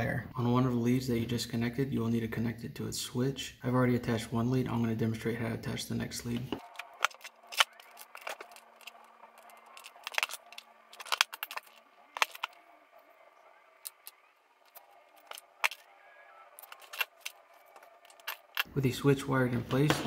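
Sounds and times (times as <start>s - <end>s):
tools clicking and tapping: 6.4s - 12.6s, 16.6s - 18.7s.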